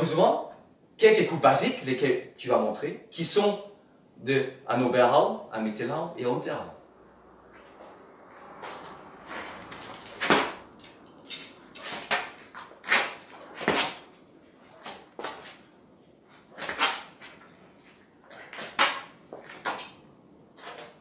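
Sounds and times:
sword swishing through air: 7.6 - 10.8.

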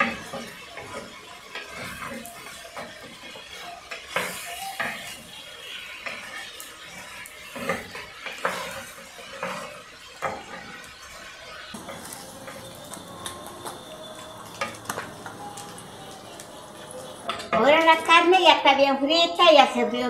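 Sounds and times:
meat sizzling in oil: 0.0 - 19.7
wooden spoon scraping clay pot: 6.0 - 12.7.

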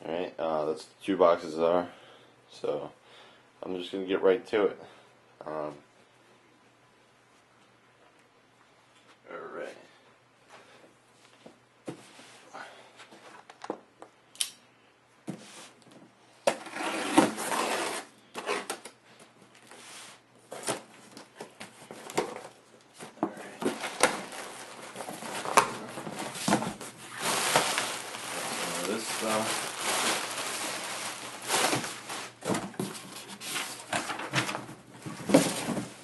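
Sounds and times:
cardboard tearing and scraping: 16.5 - 18.9, 23.6 - 34.5
cardboard rustling: 19.6 - 36.0
plastic packing crinkling: 23.6 - 36.0.

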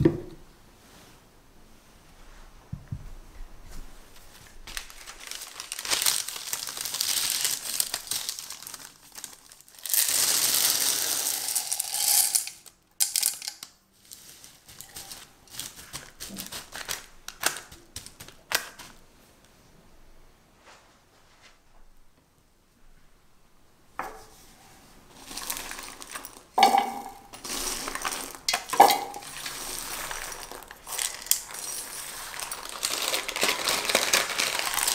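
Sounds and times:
parchment paper crackling: 4.4 - 11.8, 13.6 - 19.0, 27.3 - 34.9
dried beans pouring: 4.8 - 16.6, 25.1 - 34.9
single beans clicking: 10.8 - 13.7.

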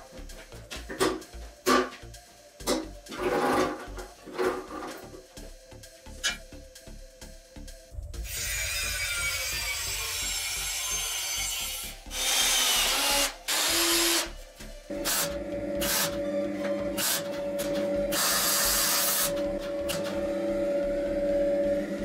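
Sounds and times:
angle grinder cutting steel: 8.2 - 14.3, 14.9 - 20.6.

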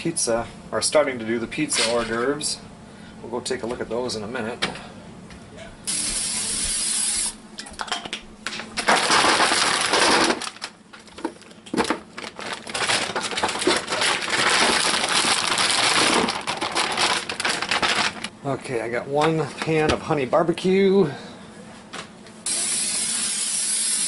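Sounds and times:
cooking spray hissing: 5.9 - 7.4, 22.5 - 24.0.

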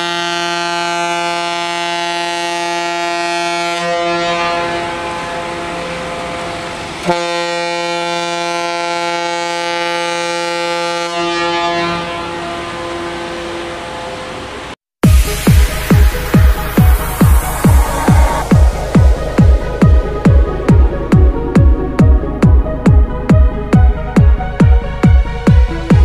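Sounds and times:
ship's horn blast: 0.0 - 26.0
rushing noise: 4.6 - 7.1, 13.4 - 26.0.

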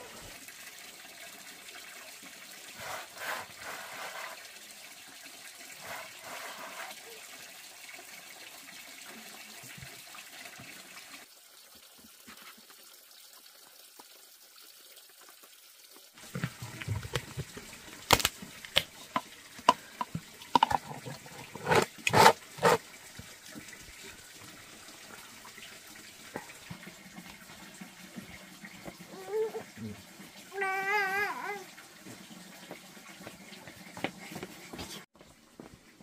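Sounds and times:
plastic lid clicking and snapping: 20.0 - 22.8.

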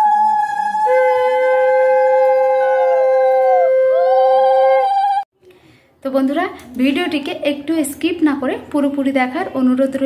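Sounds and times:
conch shells blown: 0.0 - 5.2.

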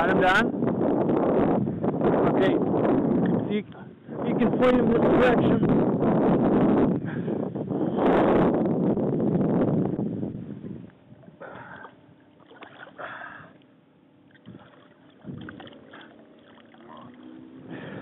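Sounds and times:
water sloshing and splashing: 11.8 - 17.7.

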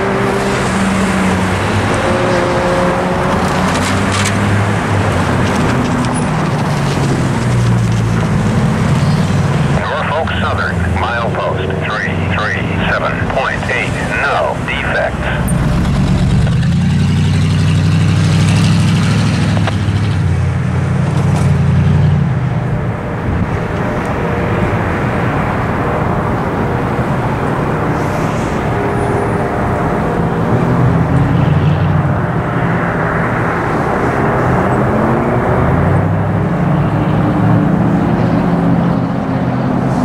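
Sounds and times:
cars driving past: 0.0 - 40.0
vehicle engine pulling away: 15.3 - 22.6.

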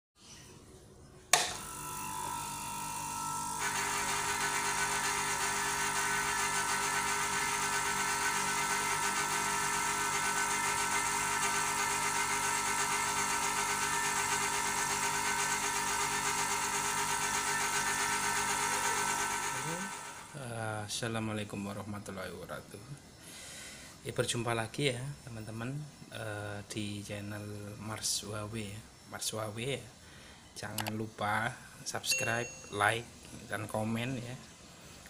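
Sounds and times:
compressor humming: 1.3 - 20.6.

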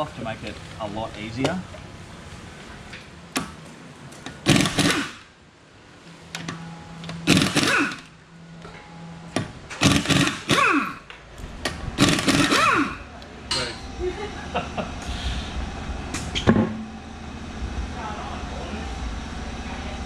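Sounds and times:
impact wrench bursts: 4.4 - 5.3, 7.2 - 8.1, 9.7 - 11.0, 12.0 - 13.0.

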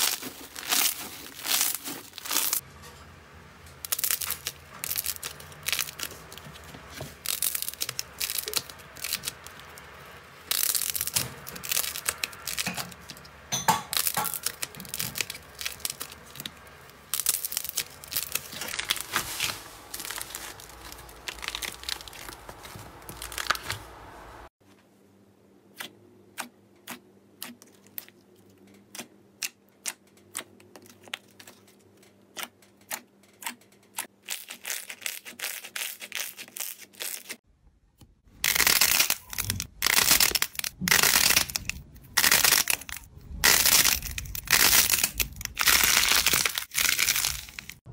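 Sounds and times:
clay slime crackling and tearing: 0.0 - 2.6, 3.9 - 13.2, 13.9 - 24.0, 32.3 - 37.4, 38.2 - 47.9.

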